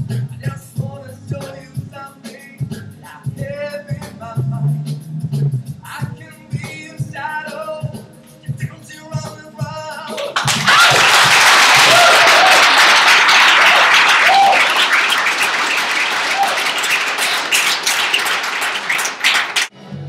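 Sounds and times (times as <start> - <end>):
audience applauding: 10.2 - 19.7
voices cheering: 10.4 - 19.7.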